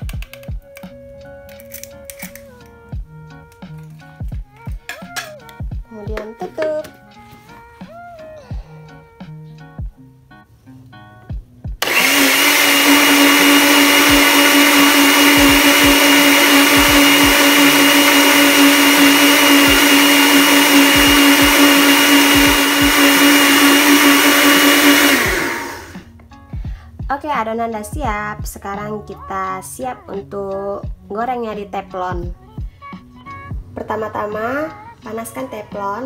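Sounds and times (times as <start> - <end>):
blender motor running: 11.8 - 26.1.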